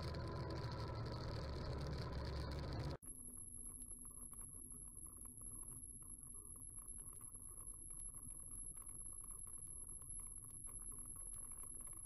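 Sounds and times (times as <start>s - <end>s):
motorcycle engine rumble: 0.0s - 3.0s
small clicks: 0.0s - 3.0s.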